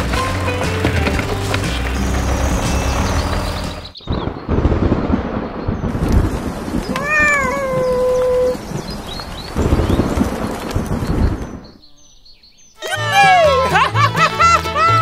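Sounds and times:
rain falling: 0:00.0 - 0:11.7
cat meowing: 0:06.9 - 0:08.6.

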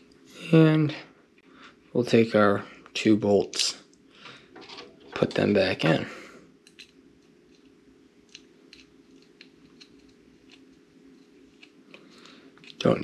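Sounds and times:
low steady hum: 0:00.0 - 0:13.0
small clicks and scrapes: 0:06.6 - 0:12.9.

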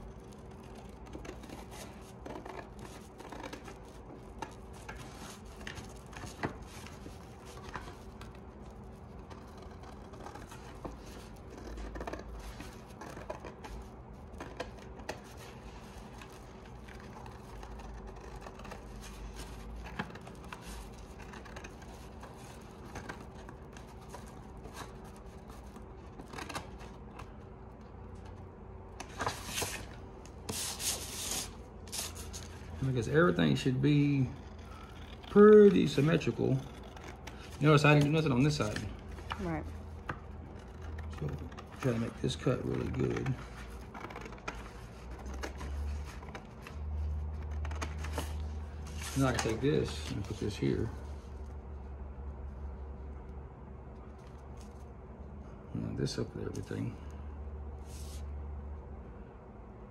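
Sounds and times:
scissors snipping paper: 0:00.0 - 0:27.4, 0:29.0 - 0:48.3
paper sheet rustling: 0:29.0 - 0:39.6.

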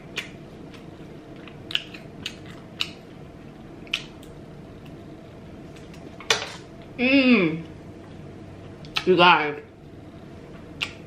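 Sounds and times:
person chewing: 0:00.0 - 0:03.2, 0:03.8 - 0:05.0
lip smacks: 0:01.6 - 0:03.0, 0:03.8 - 0:04.4, 0:10.8 - 0:11.0.

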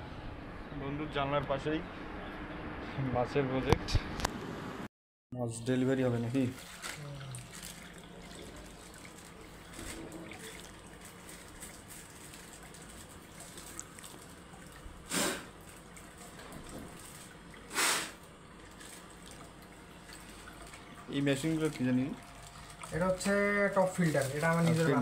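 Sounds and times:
aquarium equipment humming: 0:05.4 - 0:25.0
faint water sounds: 0:05.4 - 0:25.0
plastic bag rustling: 0:06.4 - 0:17.4, 0:21.3 - 0:25.0.

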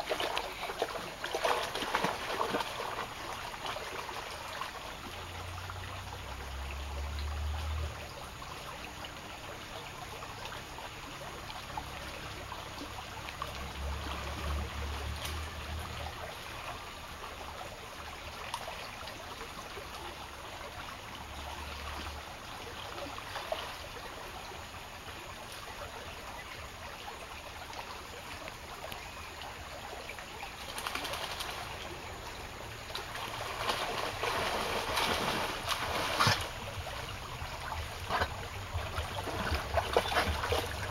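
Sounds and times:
stream trickling: 0:00.0 - 0:40.9
dog splashing in water: 0:33.4 - 0:36.6.

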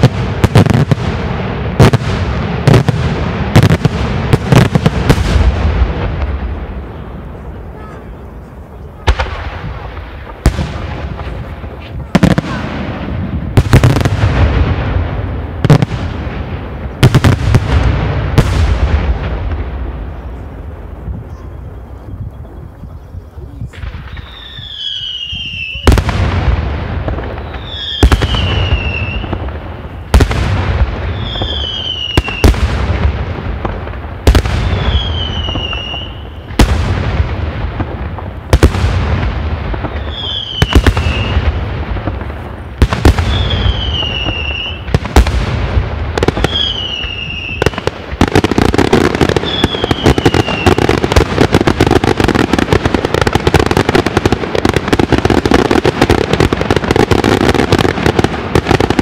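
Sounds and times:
crackling firework barrage: 0:00.0 - 0:59.0
firework shells bursting with whistles: 0:21.1 - 0:26.0, 0:27.2 - 0:30.2, 0:31.0 - 0:32.7, 0:34.3 - 0:36.8, 0:39.7 - 0:45.3, 0:46.2 - 0:52.6.

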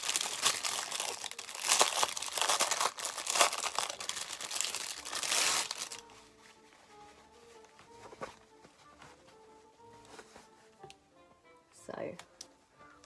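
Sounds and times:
packaging crinkling and rustling: 0:00.0 - 0:06.2.

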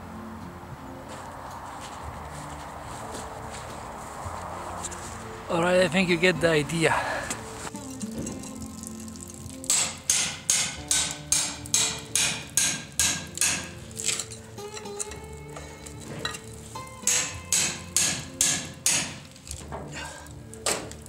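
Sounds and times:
hammer striking steel chisel bar: 0:09.7 - 0:14.2, 0:17.0 - 0:19.2.

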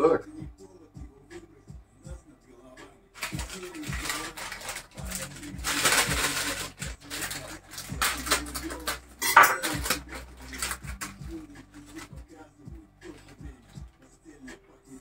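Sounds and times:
plastic sachet crinkling and tearing: 0:03.2 - 0:12.1.

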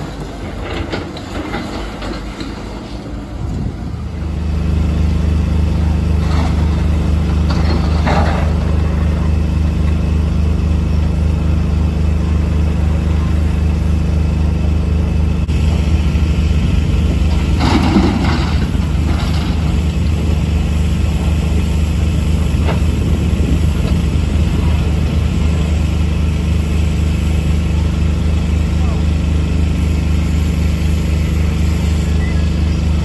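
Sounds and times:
diesel engines running: 0:00.0 - 0:33.0.

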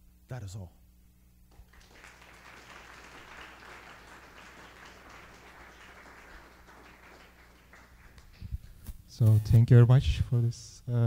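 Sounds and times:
audience applauding: 0:01.5 - 0:08.7.

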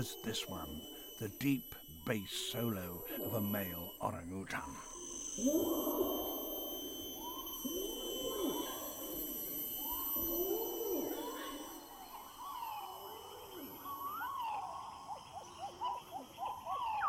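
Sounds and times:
orangutan long call: 0:04.6 - 0:17.0.

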